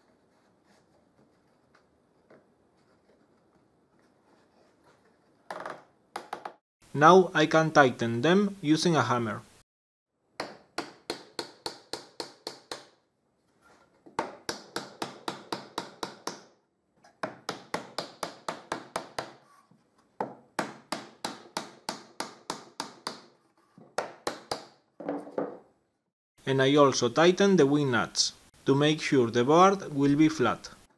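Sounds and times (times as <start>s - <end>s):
hammer tapping wooden wedge: 10.4s - 12.9s, 14.1s - 16.5s, 17.2s - 19.4s, 20.2s - 24.8s.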